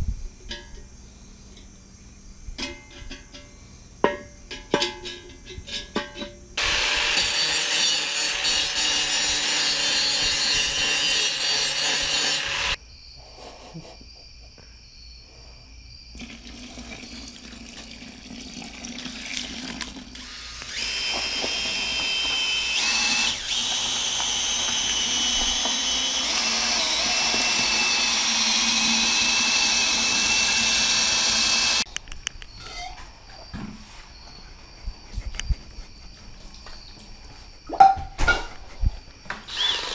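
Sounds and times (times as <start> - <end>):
angle grinder cutting steel: 6.6 - 12.8, 20.2 - 31.9, 39.5 - 39.9
power drill mixing whine: 6.6 - 12.8, 20.2 - 31.9, 39.3 - 39.9.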